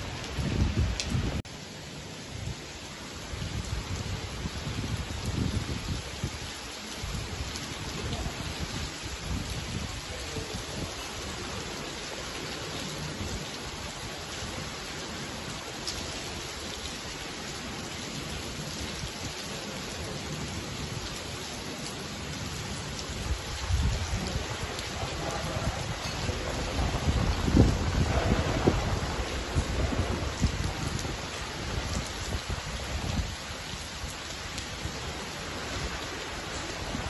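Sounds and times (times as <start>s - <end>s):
wind buffeting microphone: 0.0s - 1.4s, 3.3s - 11.5s, 23.0s - 37.0s
heavy rain pouring on paving: 0.0s - 37.0s.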